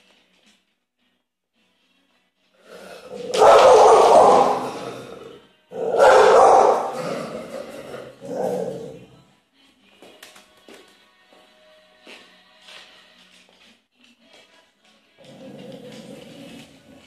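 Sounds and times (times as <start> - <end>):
dog barking: 3.1 - 5.0, 5.8 - 7.3.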